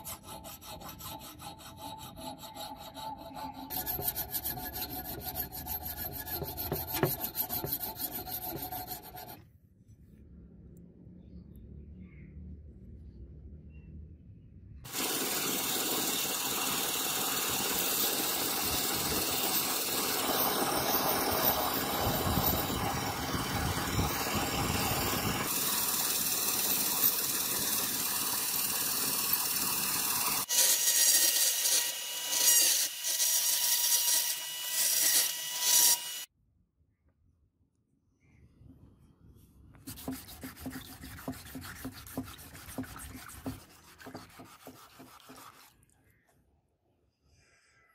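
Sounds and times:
rotary tool whining and grinding: 0.0s - 9.4s, 14.9s - 36.3s
sanding belt grinding metal: 0.0s - 9.4s, 39.9s - 45.7s.

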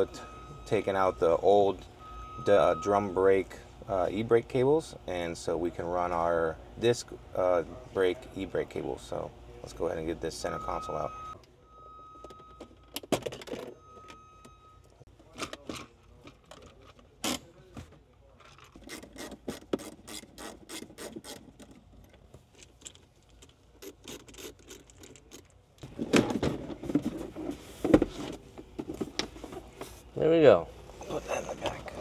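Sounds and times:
high beep: 2.0s - 3.3s, 10.4s - 12.8s, 13.7s - 14.9s.

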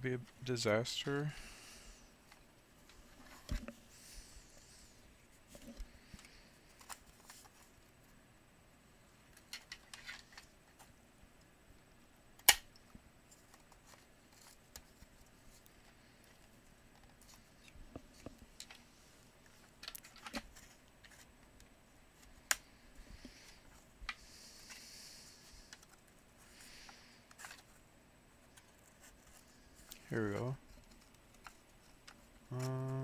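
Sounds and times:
soft rustling: 22.1s - 32.5s.

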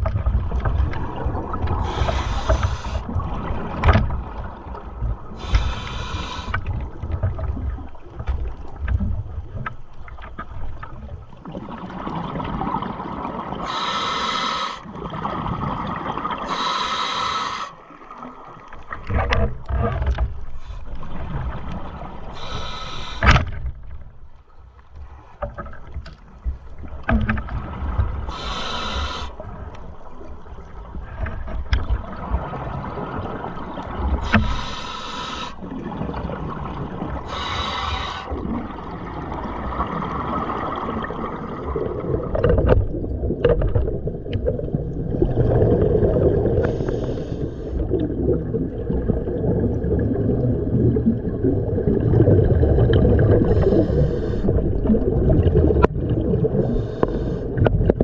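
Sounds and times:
underwater rumble of water: 0.0s - 58.0s
scuba regulator breaths hissing: 1.8s - 3.1s, 5.4s - 6.6s, 13.6s - 14.8s, 16.5s - 17.8s, 22.3s - 23.4s, 28.3s - 29.4s, 34.2s - 35.6s, 37.3s - 38.4s, 46.6s - 47.8s, 53.4s - 54.6s, 56.6s - 57.6s.

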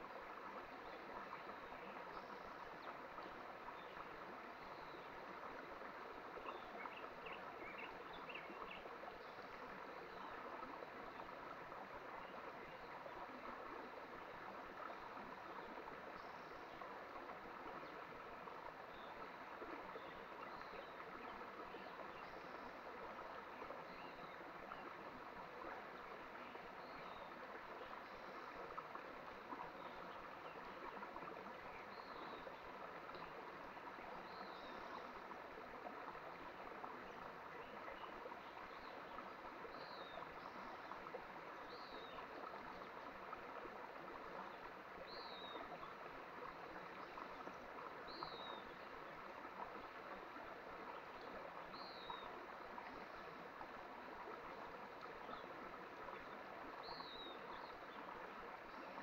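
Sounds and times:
mountain stream flowing: 0.0s - 59.0s.

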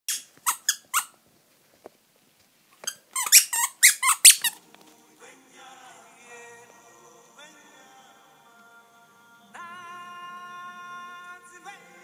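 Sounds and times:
high-pitched squeaks: 0.1s - 1.2s, 2.8s - 4.6s
soft music with held notes: 4.4s - 12.0s.

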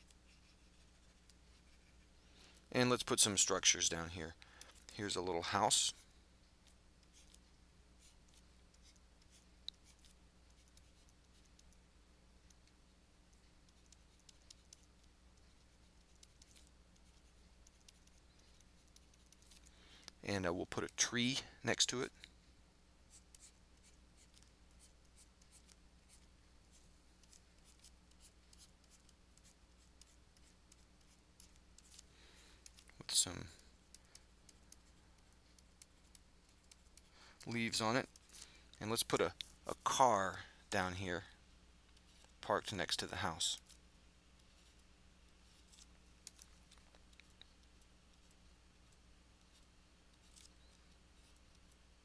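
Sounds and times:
stylus scratching on tablet: 0.0s - 2.1s, 7.0s - 11.8s, 13.3s - 19.7s, 23.1s - 32.1s, 33.1s - 38.3s
low electrical hum: 0.0s - 52.0s.

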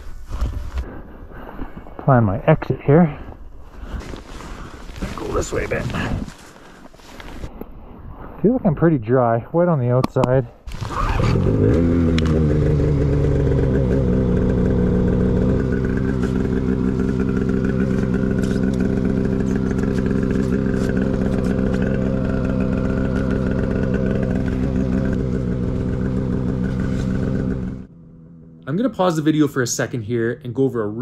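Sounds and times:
snowmobile engine idling: 4.0s - 6.2s, 11.2s - 29.7s.

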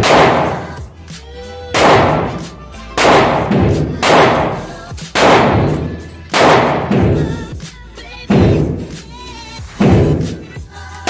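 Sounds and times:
gunshots echoing indoors: 0.0s - 0.8s, 1.7s - 2.4s, 3.0s - 7.4s.

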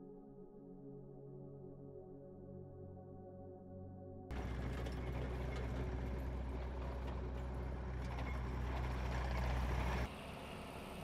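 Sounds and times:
quieter engine note: 4.3s - 11.0s
tractor diesel engine running: 4.3s - 11.0s.

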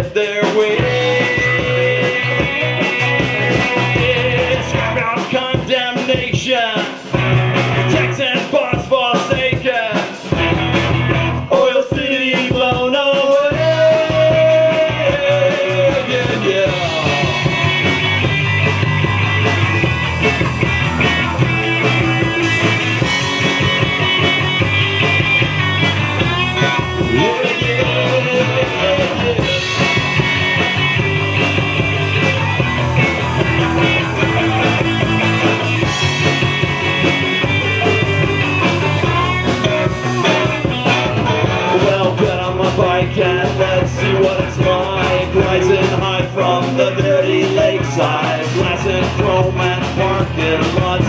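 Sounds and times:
electric bass: 0.0s - 9.6s, 10.2s - 11.6s, 12.7s - 51.0s
drums: 0.0s - 51.0s
electric guitars: 0.0s - 51.0s.

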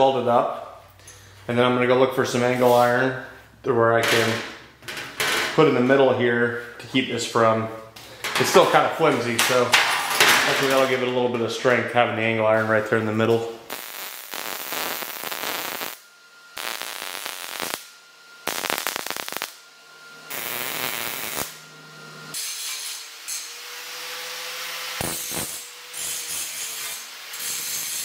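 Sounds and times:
mig welder bursts: 13.5s - 28.0s
angle grinder grinding steel: 20.2s - 28.0s.

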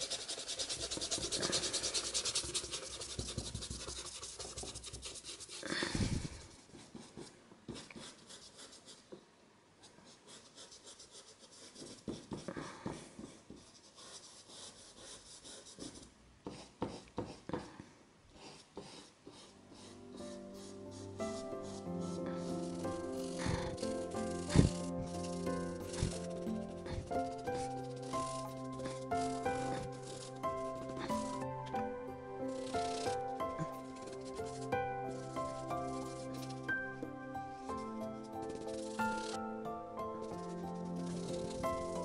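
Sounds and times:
brush scrubbing canvas: 0.0s - 9.1s, 18.4s - 31.8s, 32.5s - 36.8s, 37.6s - 39.5s, 40.2s - 42.0s.

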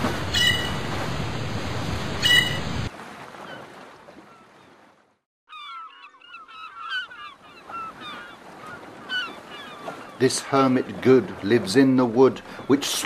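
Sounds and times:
flock of birds calling: 5.5s - 10.2s.

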